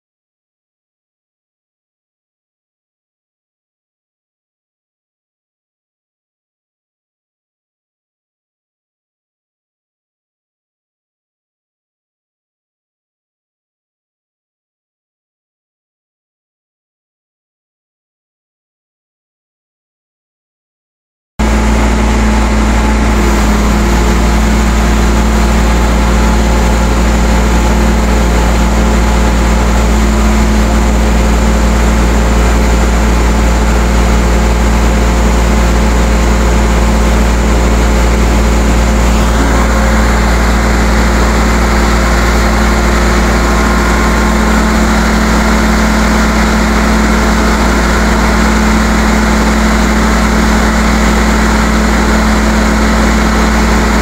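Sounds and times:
diesel engine humming: 21.4 - 54.0.

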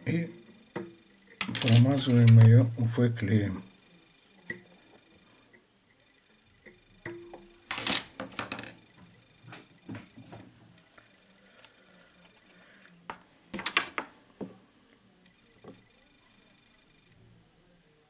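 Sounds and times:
small metal tools clinking: 1.4 - 2.0.

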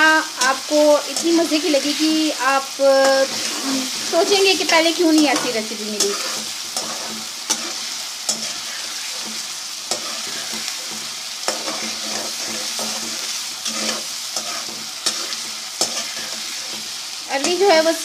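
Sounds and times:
food sizzling in hot oil: 0.0 - 18.0.

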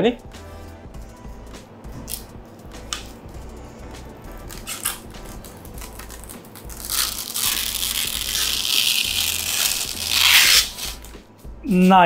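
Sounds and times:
plastic film peeling: 4.4 - 11.2.

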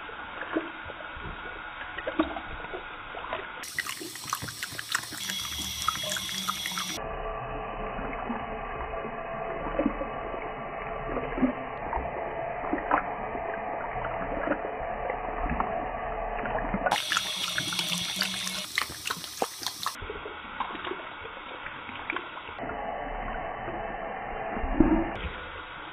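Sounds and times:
water running into sink: 0.3 - 7.0, 8.0 - 22.5
dog lapping water: 0.4 - 7.0, 9.7 - 12.0, 12.6 - 15.8, 16.4 - 22.4.

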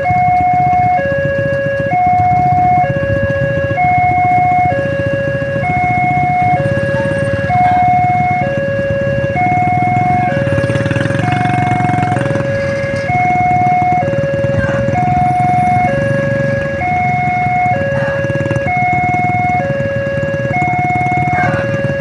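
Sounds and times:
idling engines: 0.0 - 22.0
level crossing alarm two-tone: 0.0 - 22.0.

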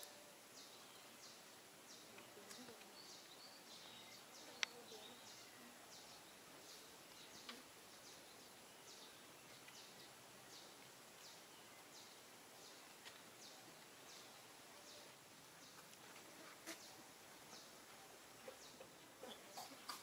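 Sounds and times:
faint clicks: 2.1 - 3.0, 4.5 - 4.8, 12.8 - 13.3.

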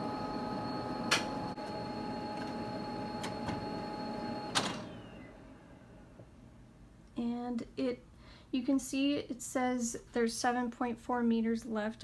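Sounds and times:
printer motor whine: 0.0 - 5.7.

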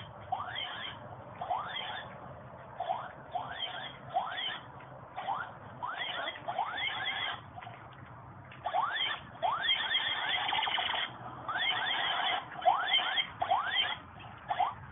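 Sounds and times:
toy gun electronic chirps: 8.6 - 11.1, 11.9 - 14.8.

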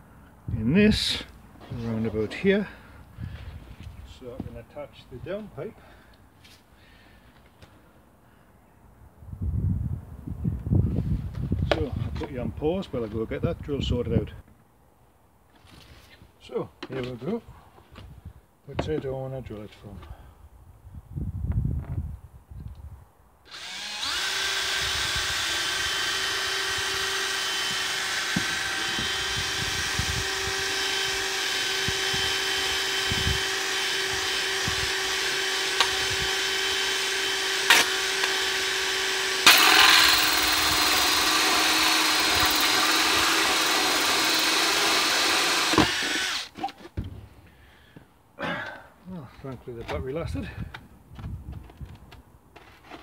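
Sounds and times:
cordless drill boring plastic: 23.5 - 46.6
drill click: 23.5 - 46.6.

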